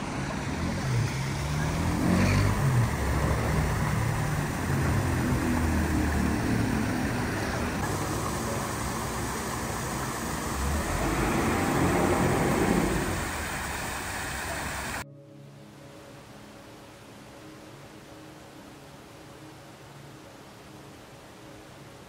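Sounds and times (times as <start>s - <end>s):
boat diesel engine running: 2.5s - 15.0s.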